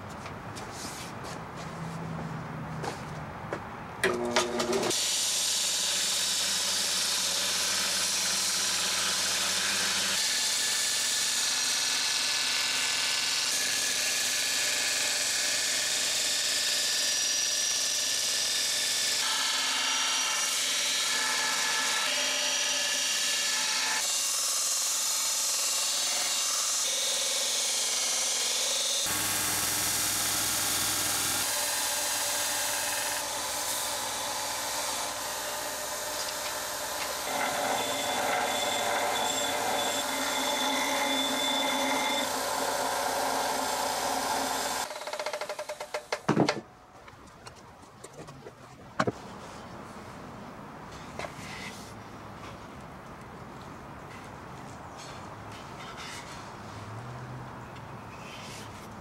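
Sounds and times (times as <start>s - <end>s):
knocks: 45.0s - 46.6s.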